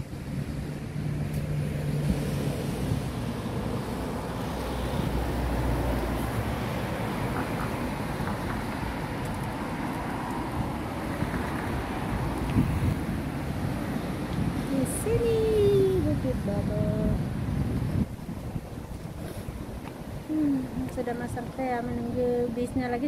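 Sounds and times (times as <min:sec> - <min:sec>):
cars passing on a street: 0:00.0 - 0:23.0.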